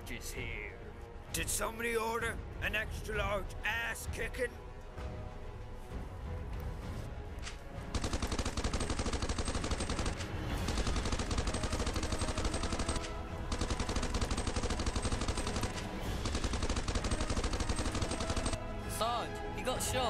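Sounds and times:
automatic gunfire bursts: 0:07.9 - 0:18.6.

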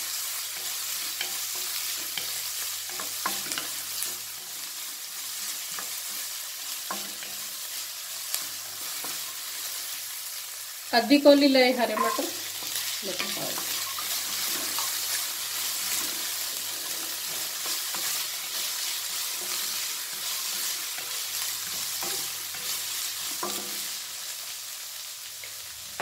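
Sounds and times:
vegetables sizzling in hot oil: 0:00.0 - 0:26.0
spatula scraping and knocking pan: 0:00.6 - 0:04.6, 0:11.8 - 0:23.9.

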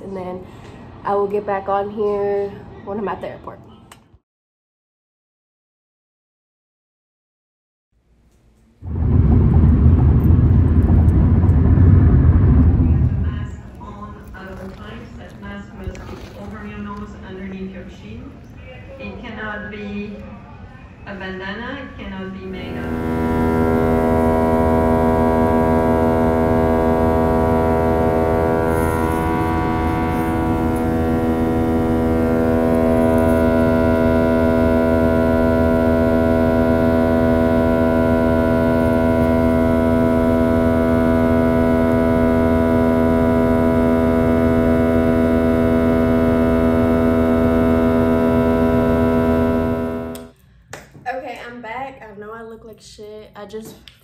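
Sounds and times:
airliner engine drone in cabin: 0:08.8 - 0:17.4, 0:22.3 - 0:50.3.

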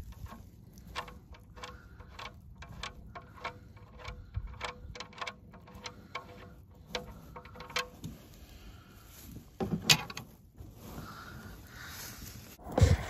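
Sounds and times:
light metallic clicks of wrench: 0:00.0 - 0:07.9.

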